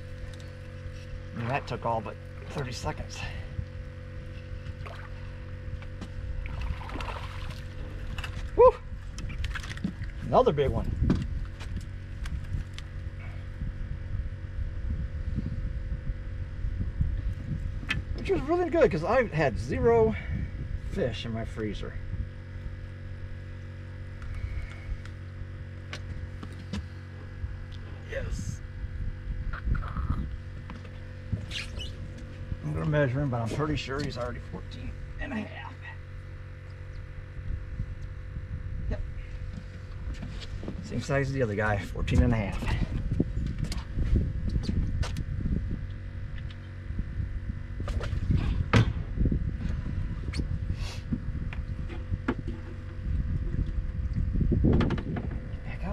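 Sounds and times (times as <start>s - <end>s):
steady low hum: 0.0s - 55.9s
wind rumble on microphone: 0.0s - 55.9s.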